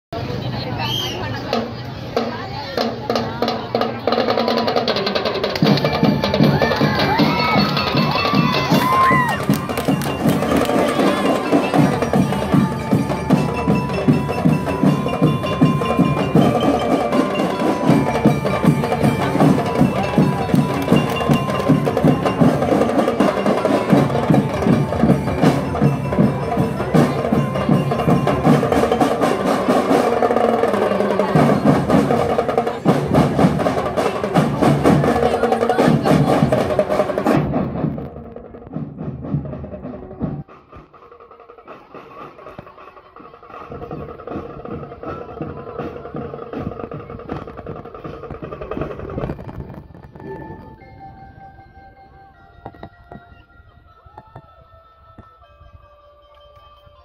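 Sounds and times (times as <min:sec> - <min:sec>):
marching drums beating: 0:01.4 - 0:50.9
bell lyre melody: 0:05.7 - 0:35.5, 0:49.2 - 0:57.0.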